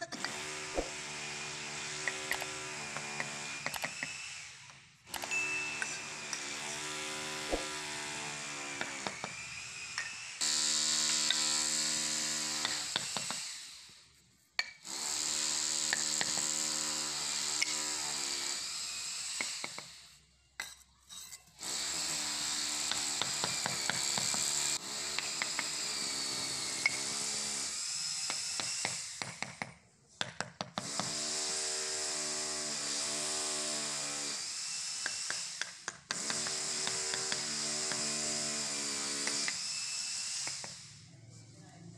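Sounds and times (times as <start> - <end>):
hammer tapping bricks: 2.0 - 4.1, 12.6 - 13.4, 14.6 - 14.9, 22.8 - 24.5, 25.1 - 25.8, 28.3 - 31.2, 35.0 - 38.1.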